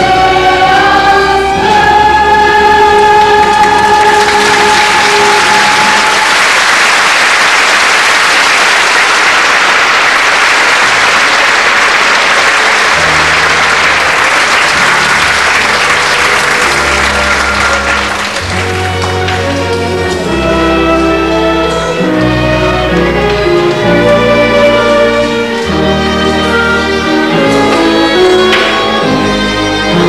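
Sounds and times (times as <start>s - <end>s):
audience applauding: 3.4s - 20.3s
low instrumental notes: 12.9s - 30.0s.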